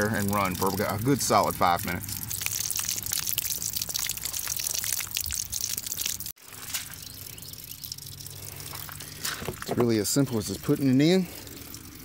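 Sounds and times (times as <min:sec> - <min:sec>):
water spattering and dripping: 0:00.0 - 0:12.0
crinkly handling noise: 0:06.4 - 0:07.0, 0:08.4 - 0:09.9.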